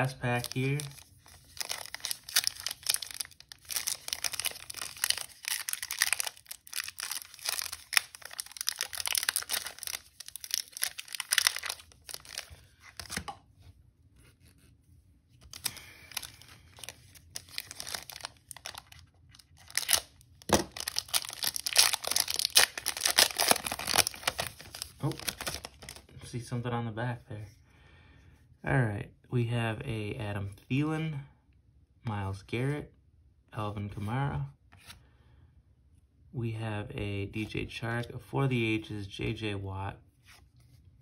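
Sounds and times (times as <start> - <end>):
foil wrapper tearing and crinkling: 0.2 - 13.2, 15.4 - 26.0.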